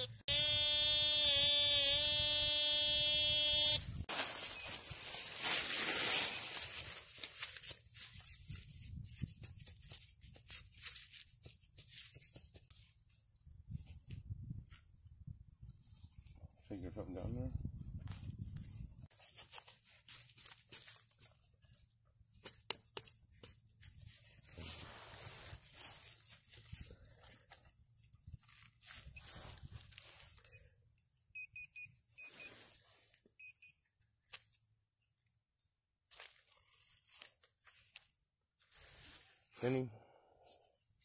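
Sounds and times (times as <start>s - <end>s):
digging into grass turf: 4.1s - 12.8s, 22.4s - 27.7s.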